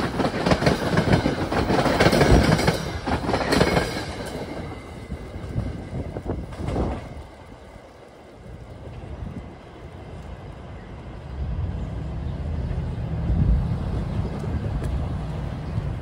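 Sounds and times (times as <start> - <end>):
train wheels clattering over rails: 0.0 - 7.9.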